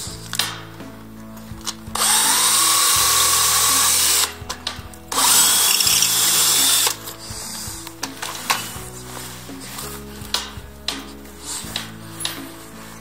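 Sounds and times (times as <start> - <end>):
cordless drill boring into wall: 1.9 - 4.4, 5.1 - 7.0.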